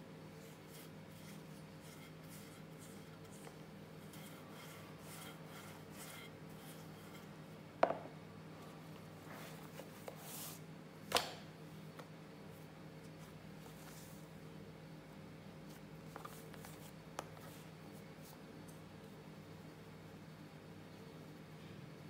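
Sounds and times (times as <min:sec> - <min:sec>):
faint steady hum: 0:00.0 - 0:22.0
rolling pin rolling over dough: 0:00.4 - 0:08.0
sharp knocks on counter: 0:07.8 - 0:08.1.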